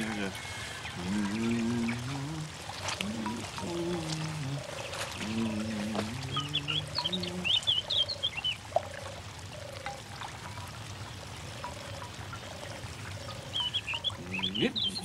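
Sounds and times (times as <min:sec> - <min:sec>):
low hummed voice-like sound: 0:00.0 - 0:07.6
songbird chirping: 0:00.0 - 0:15.0.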